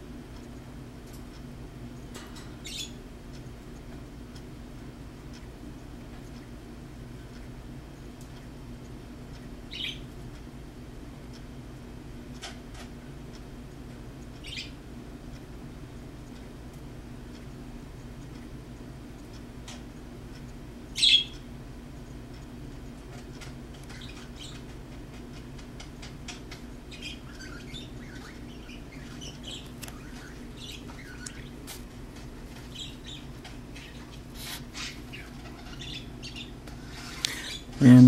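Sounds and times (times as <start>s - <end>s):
steady low hum: 0.0s - 38.0s
birds chirping: 2.5s - 3.0s, 9.7s - 10.1s, 14.4s - 14.8s, 21.0s - 21.4s, 23.8s - 24.8s, 25.8s - 31.7s, 32.4s - 38.0s.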